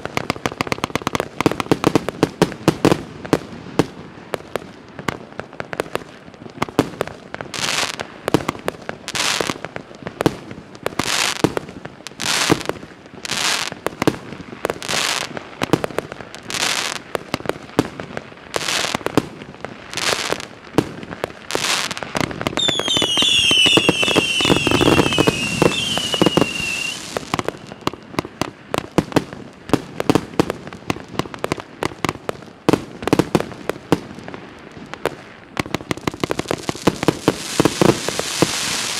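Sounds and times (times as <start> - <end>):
firework crackling: 0.0 - 38.9
firework shells bursting: 22.6 - 27.8
falling firework whistles: 22.6 - 28.0, 37.3 - 38.9.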